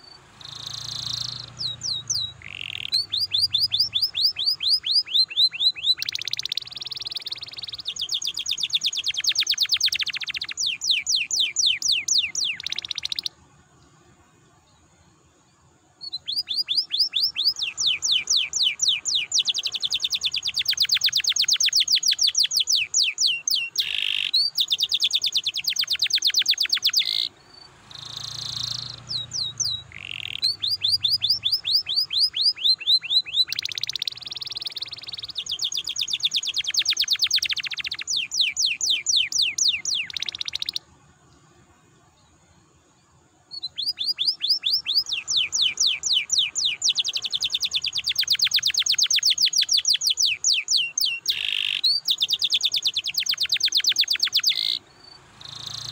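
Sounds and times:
canary singing trills: 0.0s - 13.4s, 15.6s - 41.3s, 43.5s - 55.9s.

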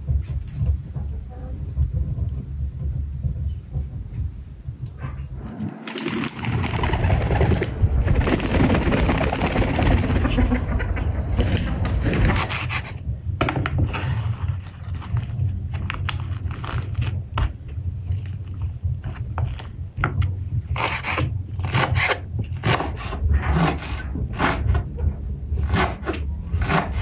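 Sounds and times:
chickens clucking: 8.9s - 12.2s.

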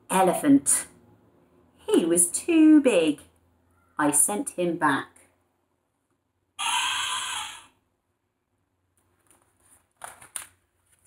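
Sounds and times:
recorded elephant trumpeting: 6.6s - 7.8s
paper rustling: 9.0s - 11.0s.

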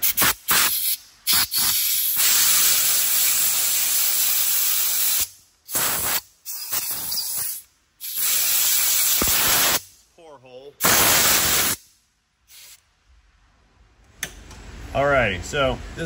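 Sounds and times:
compressed air blowgun hissing: 0.0s - 10.0s, 10.8s - 12.8s.

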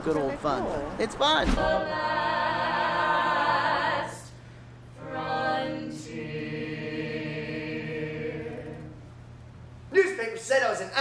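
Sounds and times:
people singing in harmony: 1.5s - 9.1s.

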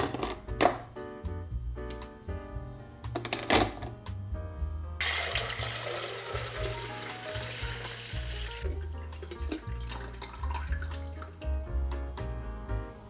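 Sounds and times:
background music: 0.0s - 13.0s
water pouring into reservoir: 5.0s - 11.5s.

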